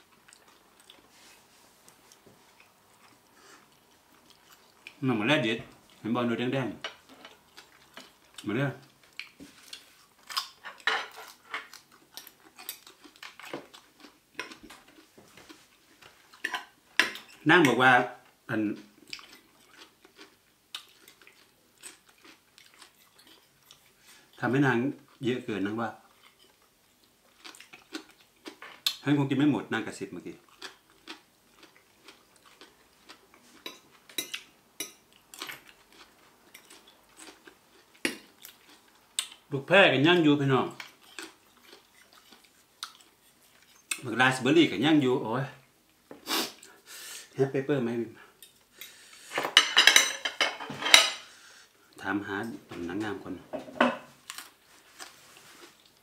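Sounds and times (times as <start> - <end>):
cutlery clinking on ceramic plate: 49.4 - 51.2, 53.6 - 54.1.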